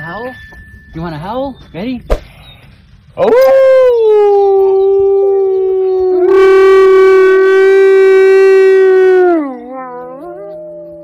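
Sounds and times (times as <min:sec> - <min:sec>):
wolf howling: 0:03.2 - 0:11.0.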